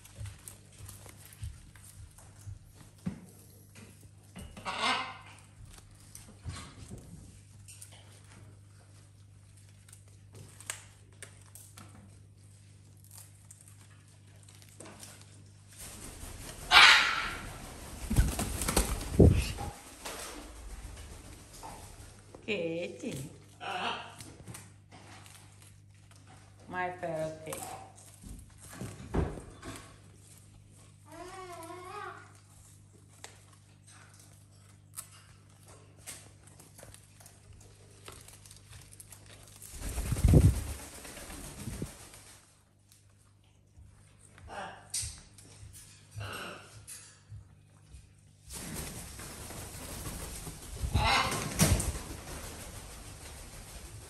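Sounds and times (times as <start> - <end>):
parrots chewing leaves: 0.0 - 54.0
harsh parrot squawk: 16.7 - 17.4
leaves rustling: 38.2 - 42.4.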